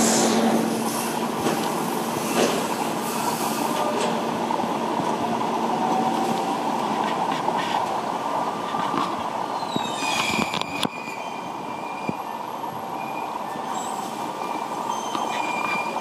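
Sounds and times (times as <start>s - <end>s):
heavy diesel machinery: 0.0s - 9.5s.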